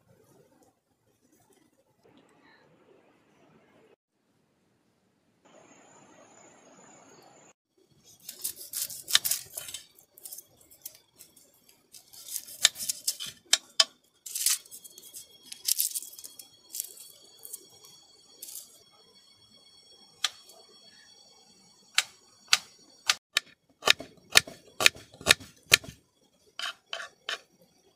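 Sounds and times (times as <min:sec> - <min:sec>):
knife cutting onion on wooden board: 0:08.1 - 0:09.8, 0:12.0 - 0:14.5, 0:23.4 - 0:26.0.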